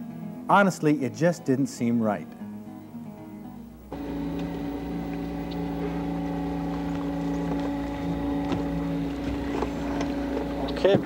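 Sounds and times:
electric trolling motor humming: 0:03.8 - 0:11.0.

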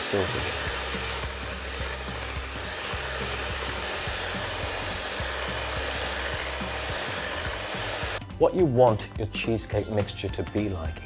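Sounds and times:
electric hand mixer whirring: 0:00.0 - 0:08.2.

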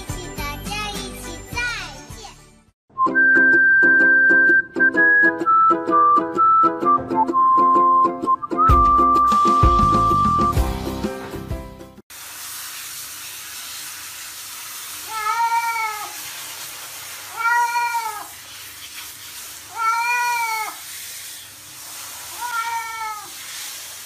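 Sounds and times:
shower head spraying water: 0:09.3 - 0:24.0
cat meowing: 0:15.1 - 0:16.2, 0:17.3 - 0:18.3, 0:19.7 - 0:20.8, 0:22.3 - 0:23.4.

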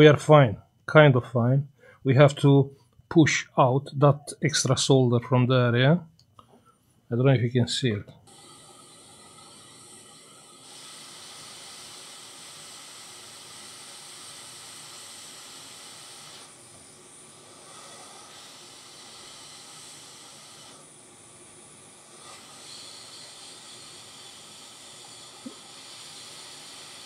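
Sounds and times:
hot air blower hiss: 0:07.9 - 0:27.0.

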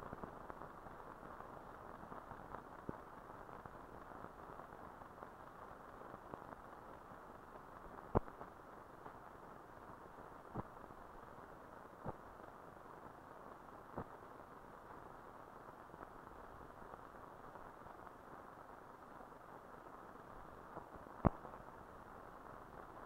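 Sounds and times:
film soundtrack hiss: 0:00.0 - 0:23.0
clicks and pops: 0:08.1 - 0:08.3, 0:21.2 - 0:21.6.

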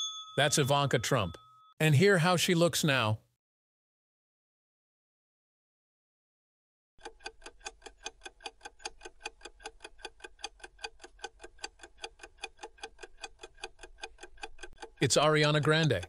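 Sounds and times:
fast clock ticking: 0:07.0 - 0:16.0.

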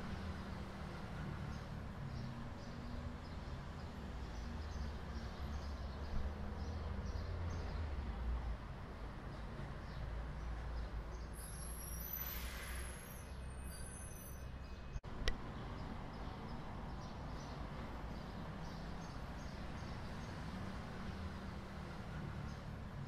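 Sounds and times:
road traffic rumble: 0:00.0 - 0:23.0.

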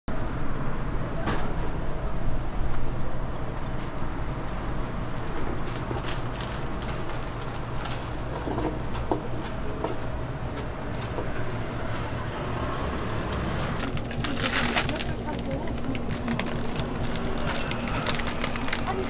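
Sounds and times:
low urban rumble: 0:00.1 - 0:19.0.

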